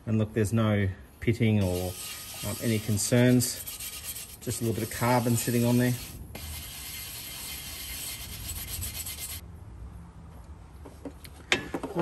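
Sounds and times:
hand scrubbing metal flange: 1.6 - 9.4.

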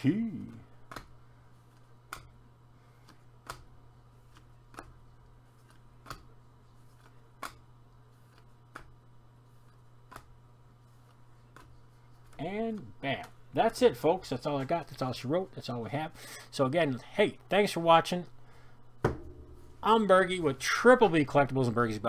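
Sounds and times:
steady low hum: 0.0 - 22.0
cards snapping: 0.5 - 2.3, 3.0 - 3.7, 10.0 - 10.4.

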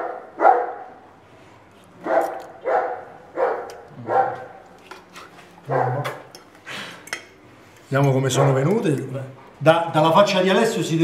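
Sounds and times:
dog barking: 0.0 - 1.0, 2.0 - 4.6, 5.7 - 6.2, 8.4 - 8.7.

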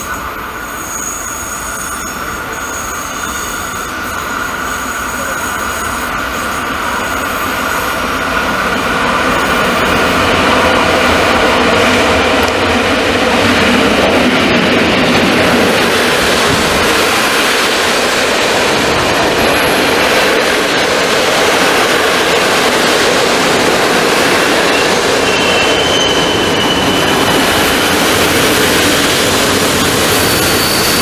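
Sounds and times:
train wheels rumbling on rail: 0.0 - 31.0
high squeal: 0.5 - 8.0, 24.6 - 31.0.

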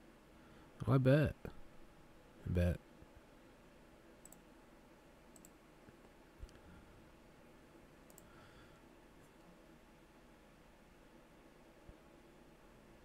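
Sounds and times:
faint mouse clicks: 4.2 - 4.5, 5.3 - 6.6, 8.0 - 8.4.

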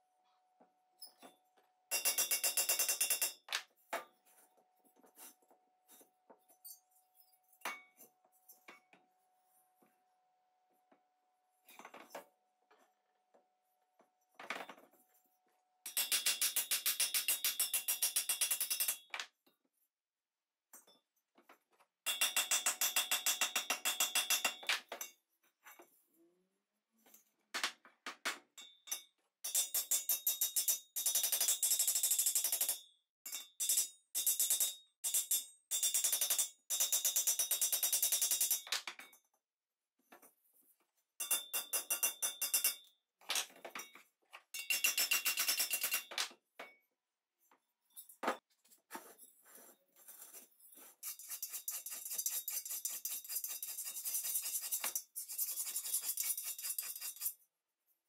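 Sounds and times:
hammer tapping on thin metal: 1.9 - 3.6, 15.9 - 19.1, 22.1 - 25.2, 41.2 - 42.9, 44.6 - 46.8.

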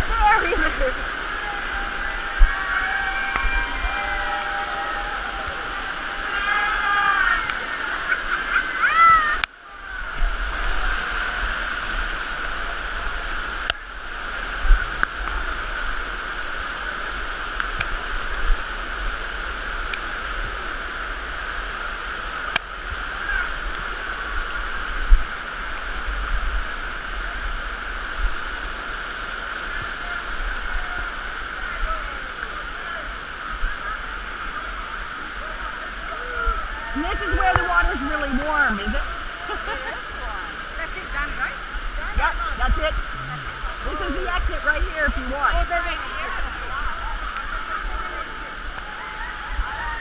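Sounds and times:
faint voices: 0.0 - 19.1, 29.2 - 50.0
waterfall rushing over rocks: 0.0 - 50.0
water hitting microphone: 36.0 - 39.9, 40.8 - 49.8.

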